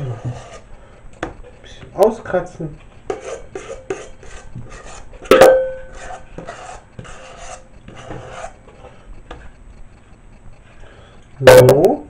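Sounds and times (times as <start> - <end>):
spatula scraping metal bowl: 0.0 - 0.8, 3.0 - 9.0.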